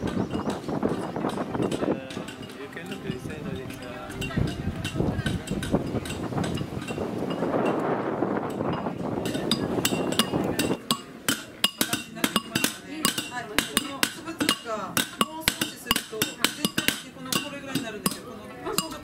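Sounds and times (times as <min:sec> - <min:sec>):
pounder clinking on stone: 0:08.5 - 0:19.0.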